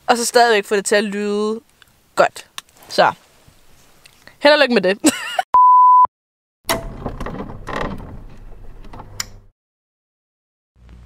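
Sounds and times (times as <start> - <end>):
steady beep: 5.6 - 6.1.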